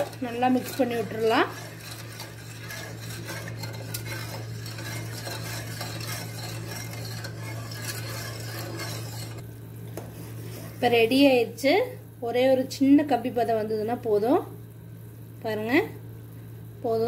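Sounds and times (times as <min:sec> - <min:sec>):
spoon scraping metal saucepan: 0:00.0 - 0:09.4.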